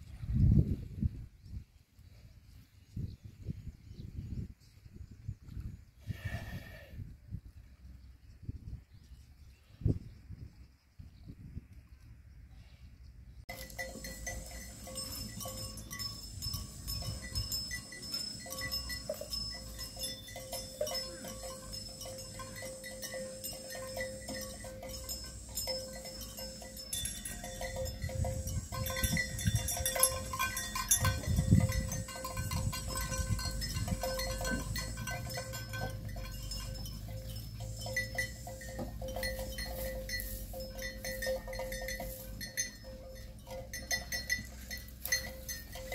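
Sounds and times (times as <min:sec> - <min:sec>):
herd moving over stony ground: 0:13.5 - 0:45.9
livestock bells clinking: 0:13.5 - 0:45.9.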